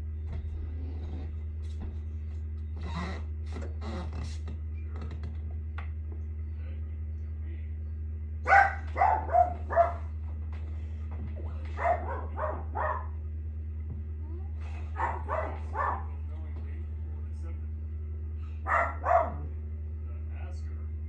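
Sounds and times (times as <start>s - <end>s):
dog barking: 8.4s - 10.2s, 11.7s - 13.2s, 14.8s - 16.2s, 18.6s - 19.5s.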